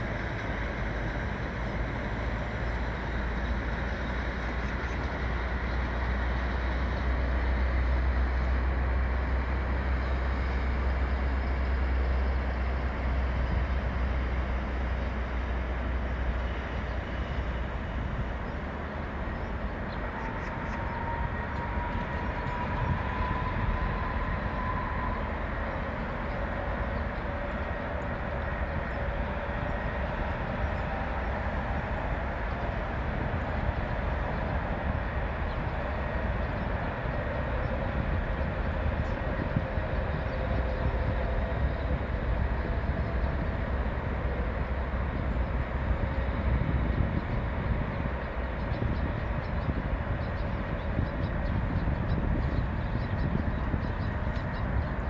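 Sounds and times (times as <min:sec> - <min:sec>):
distant vehicles rumbling: 0:00.0 - 0:55.0
lower sinking whine: 0:16.2 - 0:55.0.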